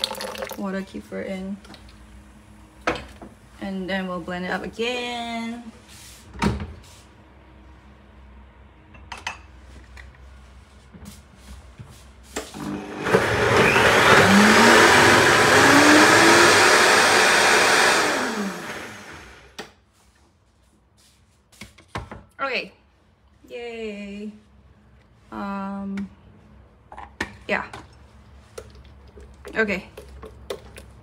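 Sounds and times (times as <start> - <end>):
blender motor running: 12.6 - 19.6.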